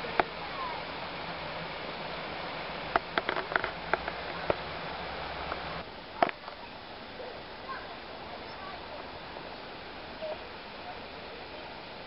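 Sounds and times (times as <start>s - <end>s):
rushing outdoor noise: 0.0s - 12.0s.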